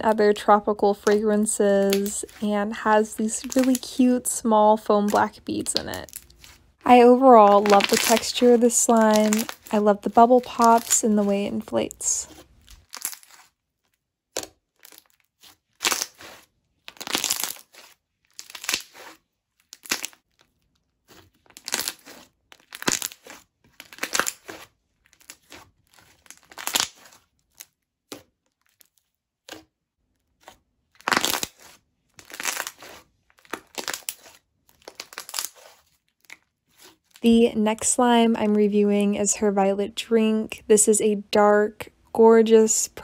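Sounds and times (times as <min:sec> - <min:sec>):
slime squelching and popping: 0:03.1 - 0:13.6, 0:14.3 - 0:37.2.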